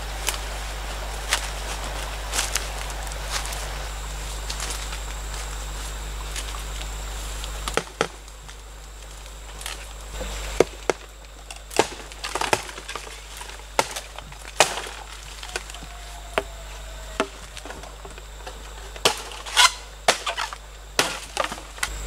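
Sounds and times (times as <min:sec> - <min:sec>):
bamboo chopping cracks: 0:07.4 - 0:22.0.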